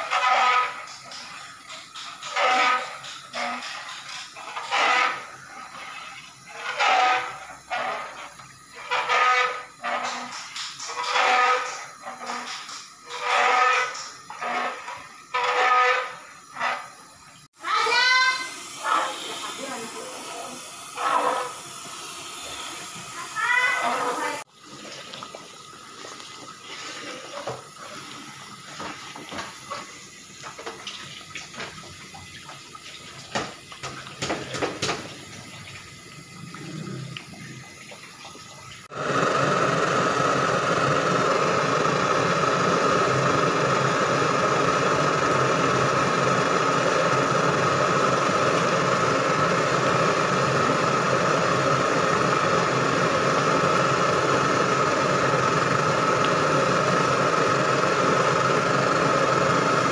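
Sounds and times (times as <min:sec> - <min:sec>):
metal spatula scraping a pan: 0:00.0 - 0:01.0, 0:02.2 - 0:08.2, 0:08.8 - 0:10.4, 0:11.0 - 0:16.9
burner and simmering liquid rushing: 0:00.0 - 0:59.9.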